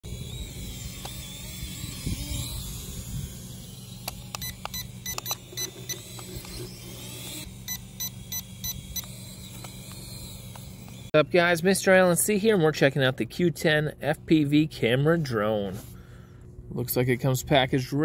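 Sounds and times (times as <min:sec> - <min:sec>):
drone propellers buzzing: 0:00.0 - 0:11.1
high electronic ticks: 0:03.8 - 0:11.1.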